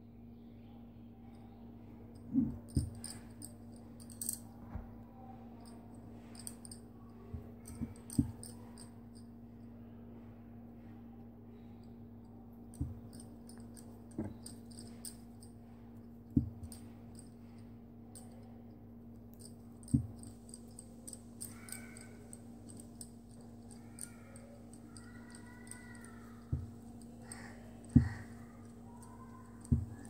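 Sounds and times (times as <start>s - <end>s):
steady low hum: 0.0s - 30.0s
dull thumps: 16.4s - 16.8s
metal knitting needles clicking: 19.4s - 30.0s.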